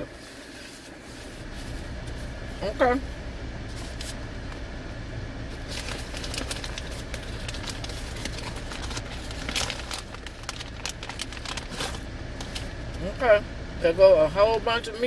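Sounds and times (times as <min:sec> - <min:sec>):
paper bag crinkling: 0:05.5 - 0:12.7.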